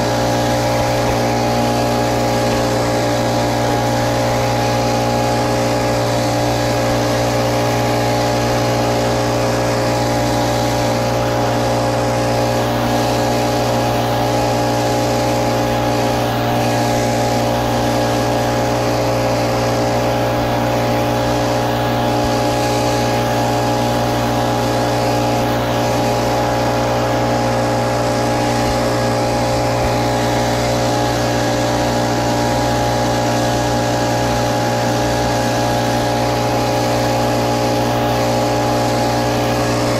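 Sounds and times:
leaf blower engine running: 0:00.0 - 0:39.9.

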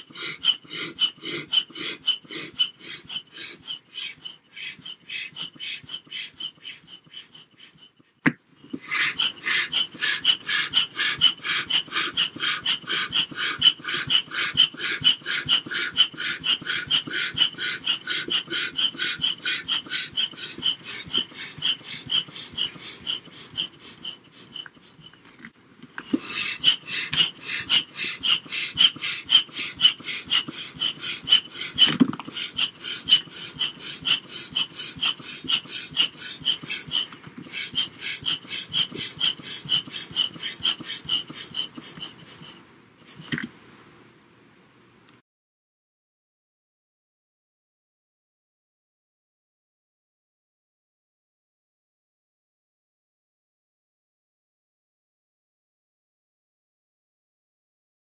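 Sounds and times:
hand air pump puffing: 0:00.0 - 0:43.5.

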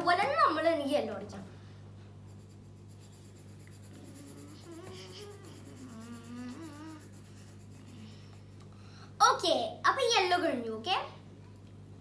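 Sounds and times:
steady low hum: 0:00.0 - 0:12.0
pencil scratching on paper: 0:02.3 - 0:08.6
faint wavering voice: 0:03.8 - 0:08.2.

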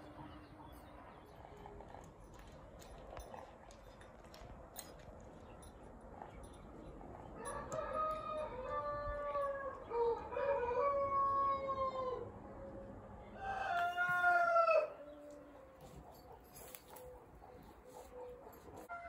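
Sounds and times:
rooster crowing: 0:07.4 - 0:12.3, 0:13.4 - 0:15.5.

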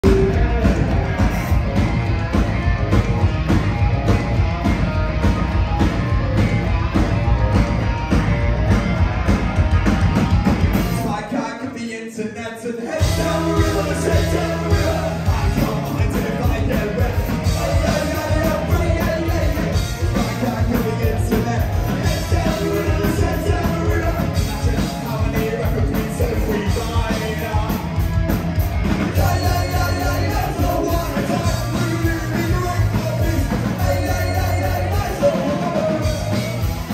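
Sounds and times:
live rock band playing: 0:00.0 - 0:11.8, 0:12.8 - 0:36.9
person singing: 0:10.8 - 0:28.1, 0:29.0 - 0:36.7.

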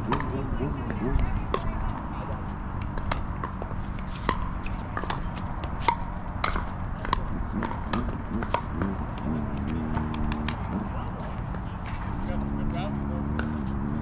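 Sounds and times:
ball bouncing on hard court: 0:00.0 - 0:02.2, 0:02.8 - 0:12.0, 0:13.3 - 0:13.7
paddles hitting plastic ball: 0:02.8 - 0:11.6.

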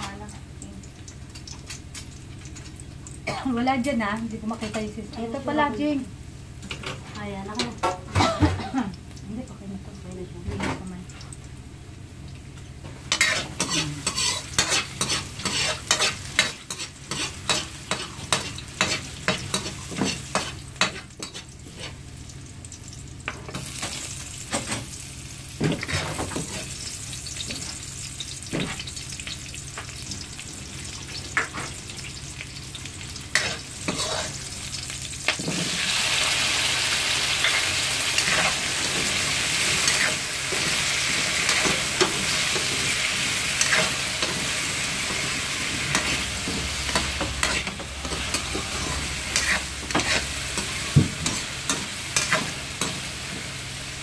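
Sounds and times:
garlic sizzling in hot oil: 0:00.0 - 0:54.0
metal spatula scraping a pan: 0:13.1 - 0:22.0, 0:33.3 - 0:34.5, 0:37.3 - 0:53.1.

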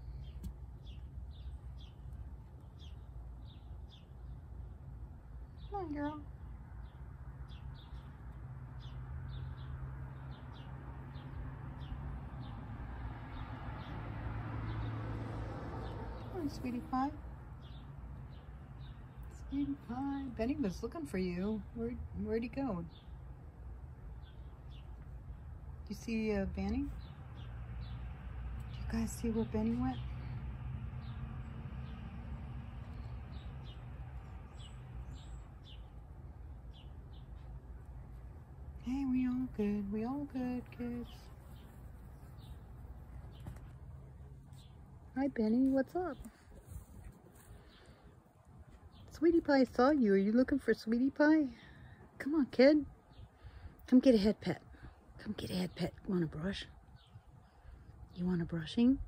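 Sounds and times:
small birds chirping: 0:00.0 - 0:15.1, 0:15.7 - 0:59.0
low steady hum: 0:16.2 - 0:59.0.

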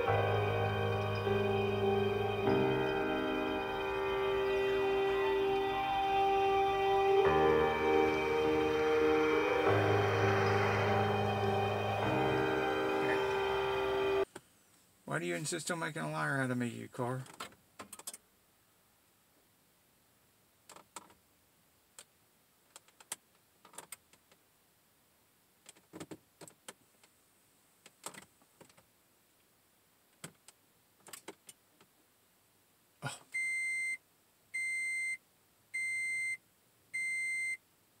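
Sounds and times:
car warning chime beeping: 0:35.8 - 0:36.4, 0:37.0 - 0:37.6.

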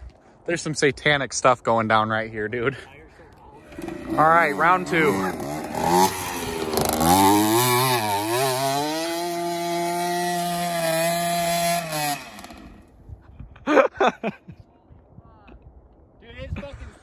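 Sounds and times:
pit bike engine revving: 0:03.6 - 0:12.9.

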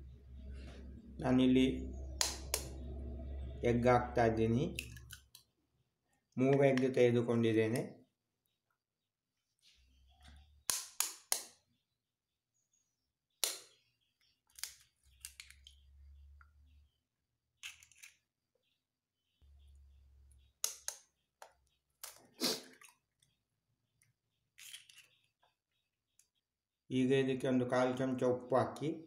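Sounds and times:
faint low rumbling: 0:00.0 - 0:05.0.

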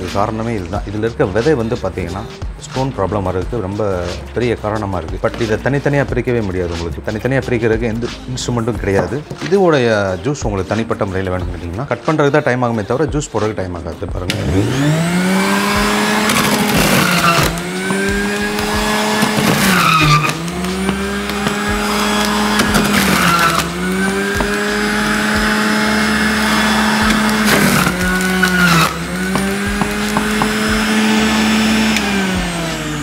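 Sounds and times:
electric juicer motor whining: 0:14.2 - 0:33.0.

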